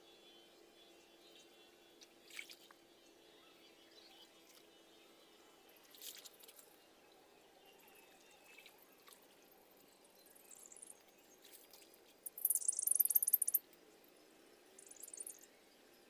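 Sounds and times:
water splashing and sloshing: 2.2 - 2.7.

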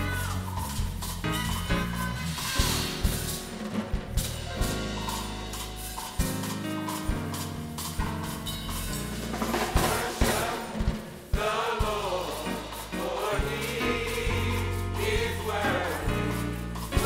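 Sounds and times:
live band with percussion: 0.0 - 17.0
gospel choir singing: 9.3 - 17.0.

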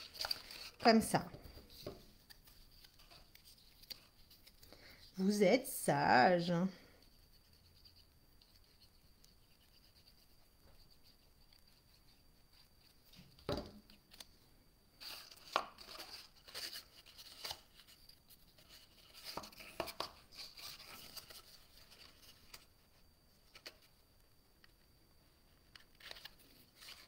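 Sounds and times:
paper rustling and clicking: 0.0 - 1.0, 1.6 - 4.7.

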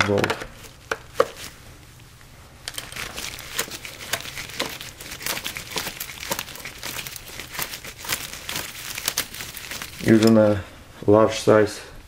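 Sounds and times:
hose clamp clicking and crinkling: 2.6 - 10.4.

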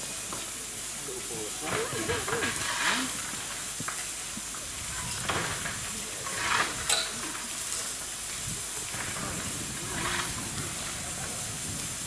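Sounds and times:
steam hissing from locomotive: 0.0 - 12.0
shovel scraping into coal: 6.3 - 7.2.

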